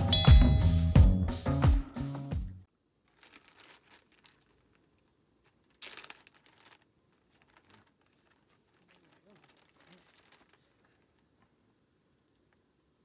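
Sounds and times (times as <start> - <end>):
plastic bag crinkling: 3.0 - 11.5.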